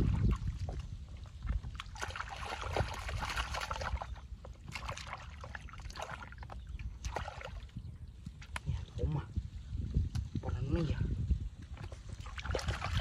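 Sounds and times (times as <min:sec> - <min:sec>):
hands splashing in muddy water: 0:00.0 - 0:07.7, 0:11.8 - 0:13.0.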